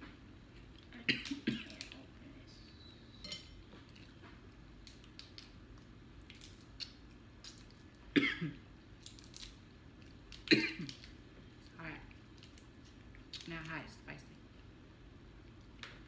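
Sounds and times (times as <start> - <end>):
shells cracking and snapping: 4.8 - 7.9, 9.0 - 11.2, 12.3 - 13.8.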